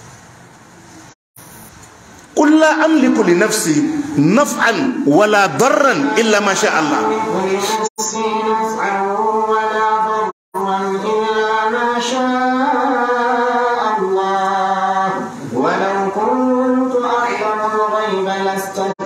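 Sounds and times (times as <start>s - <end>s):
man chanting melodically: 2.3s - 9.2s.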